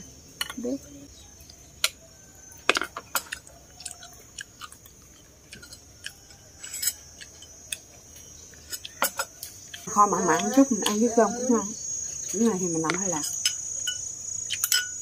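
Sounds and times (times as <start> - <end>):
crickets droning: 0.0 - 15.0
chewing crunchy food: 2.7 - 11.0.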